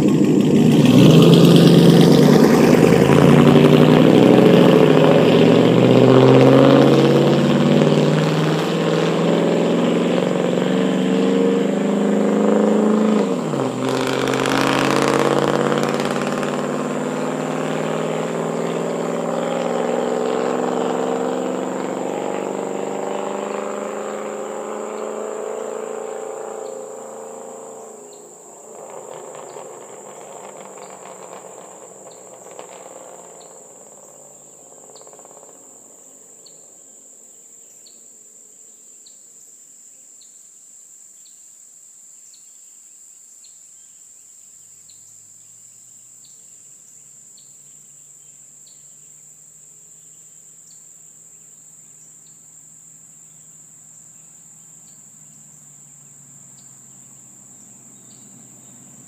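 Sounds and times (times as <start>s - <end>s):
car exhaust passing: 0.0s - 37.6s, 45.2s - 59.0s
insects droning: 0.7s - 59.0s
faint insect chirps: 16.6s - 59.0s.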